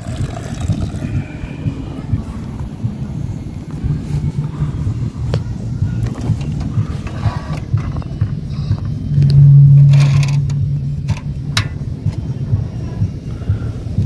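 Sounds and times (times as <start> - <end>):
low hum: 0.0 - 14.0
low rumble: 0.0 - 14.0
igniter clicks: 5.3 - 12.3.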